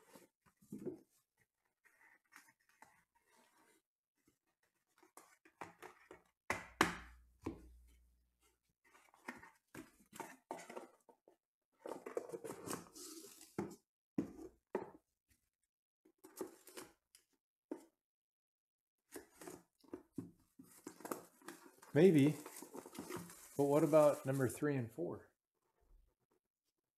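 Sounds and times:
cardboard scraping and rustling: 11.8 - 14.5, 19.2 - 24.5.

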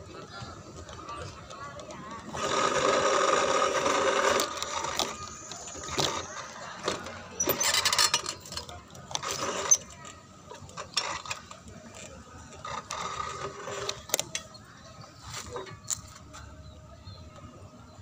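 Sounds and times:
bicycle rattling and clicking: 1.6 - 14.6.

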